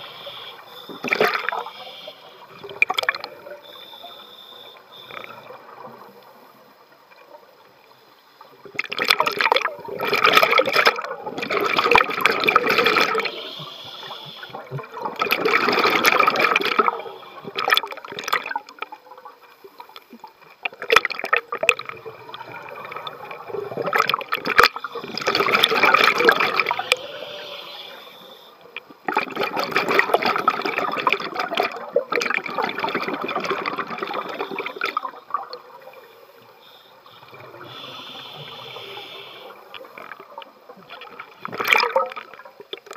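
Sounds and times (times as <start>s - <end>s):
regulator bubbling underwater: 8.7s - 19.3s, 20.6s - 27.5s, 28.8s - 36.0s.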